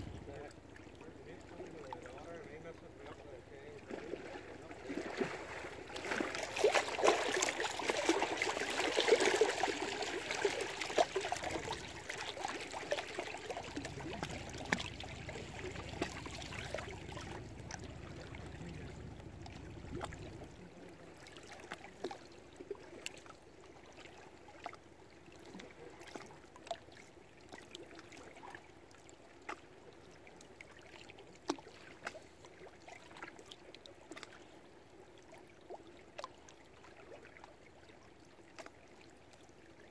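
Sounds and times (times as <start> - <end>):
low hum: 0.0 - 3.8, 13.4 - 21.3
lake water lapping and splashing: 0.0 - 39.9.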